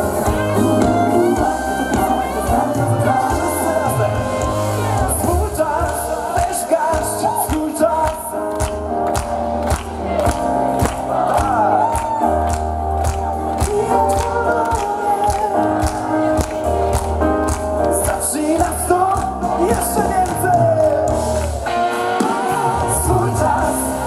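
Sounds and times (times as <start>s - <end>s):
voices singing over a band: 0.0s - 8.2s, 17.8s - 24.0s
sharp claps: 7.5s - 19.3s.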